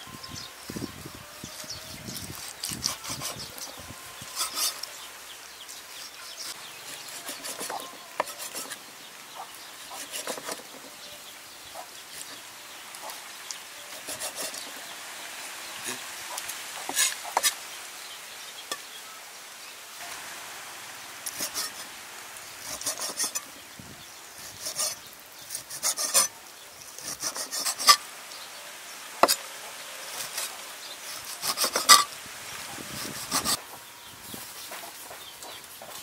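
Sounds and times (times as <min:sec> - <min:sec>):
scraping on chopping block: 0:02.2 - 0:04.9, 0:06.4 - 0:08.9, 0:09.9 - 0:10.9, 0:13.9 - 0:14.8, 0:21.3 - 0:21.9, 0:22.6 - 0:23.5, 0:24.4 - 0:26.3, 0:27.0 - 0:28.0, 0:29.2 - 0:29.4, 0:30.1 - 0:32.1, 0:33.0 - 0:33.6.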